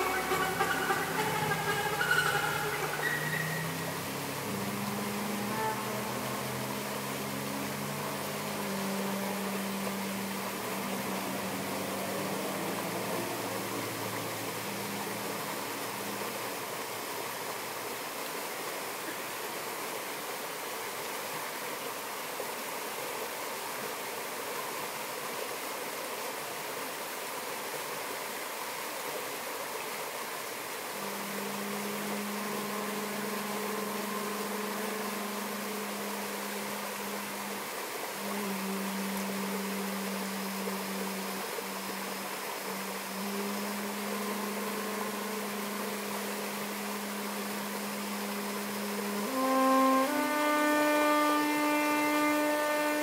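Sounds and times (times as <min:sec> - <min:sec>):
low saxophone note: 0:00.0 - 0:17.1, 0:31.0 - 0:53.0
stream rushing over rocks: 0:00.0 - 0:53.0.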